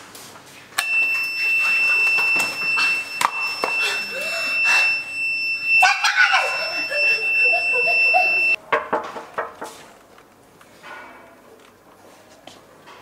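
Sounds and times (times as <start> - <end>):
high-pitched electronic buzzer: 0.8 - 8.6.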